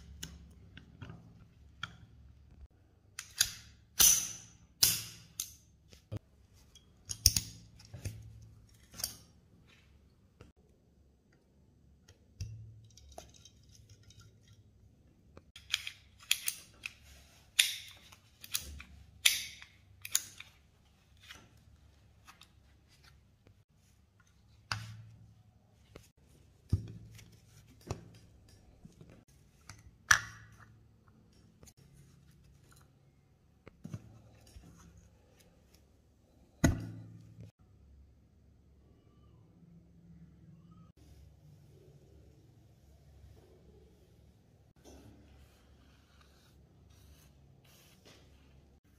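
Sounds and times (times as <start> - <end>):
pistol parts clicking and knocking: 3.2 - 5.7, 7.0 - 8.1, 15.6 - 17.0, 17.6 - 20.6.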